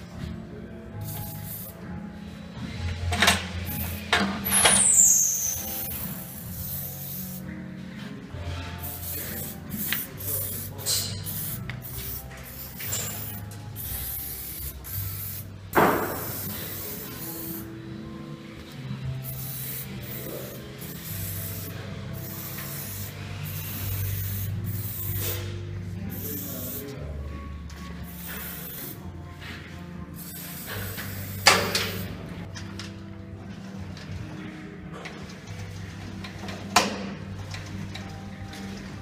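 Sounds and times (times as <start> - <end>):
background music: 0.0 - 39.0
aerosol can spraying in hissing bursts: 1.0 - 1.8, 3.6 - 4.1, 4.8 - 7.5, 8.8 - 17.7, 19.1 - 27.0, 28.0 - 29.1, 30.1 - 32.2.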